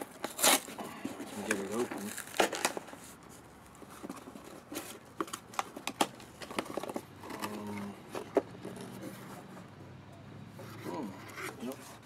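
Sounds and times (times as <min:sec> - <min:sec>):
cardboard box being opened: 0:00.0 - 0:09.6.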